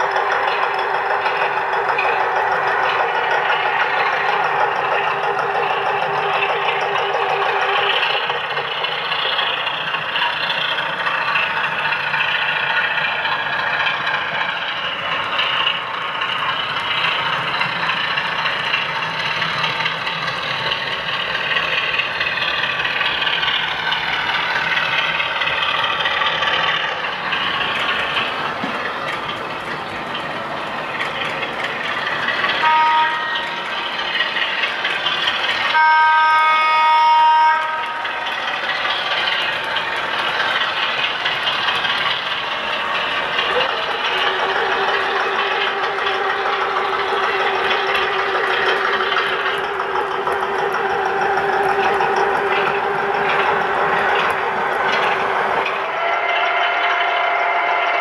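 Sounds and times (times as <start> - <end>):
model diesel engine running: 0.0 - 57.6
two-tone warning horn: 32.6 - 33.7, 35.7 - 38.4, 55.8 - 58.0.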